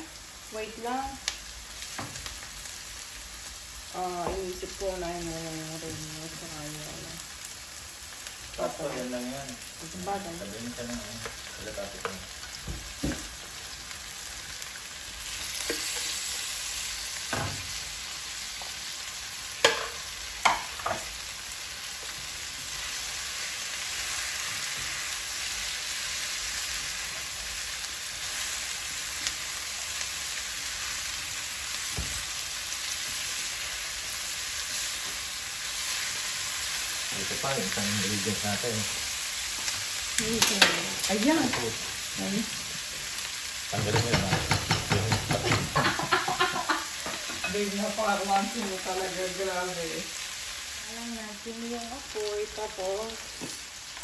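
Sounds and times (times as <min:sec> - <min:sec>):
meat and tofu sizzling in a pan: 0:00.0 - 0:54.0
spatula knocking against pan: 0:43.9 - 0:46.0.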